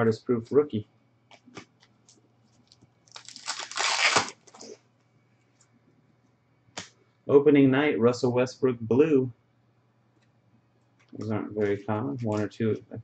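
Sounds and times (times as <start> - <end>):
foil wrapper tearing and crinkling: 3.1 - 4.8.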